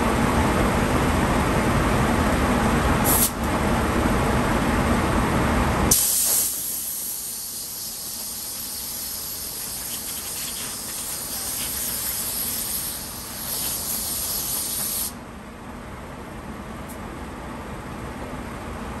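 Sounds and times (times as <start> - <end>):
compressed air hissing from blow gun: 3.1 - 3.4, 5.9 - 15.2.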